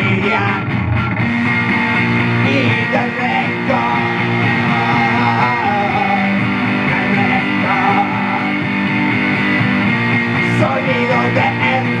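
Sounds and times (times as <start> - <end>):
electric guitar strummed: 0.0 - 12.0
person singing: 2.4 - 8.7, 10.3 - 12.0.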